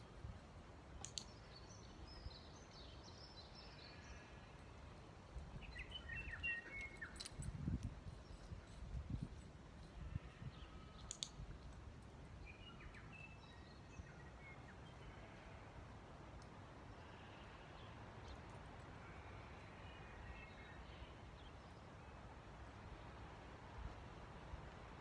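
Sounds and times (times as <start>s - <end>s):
sharp click: 1.0s - 1.3s, 11.0s - 11.4s.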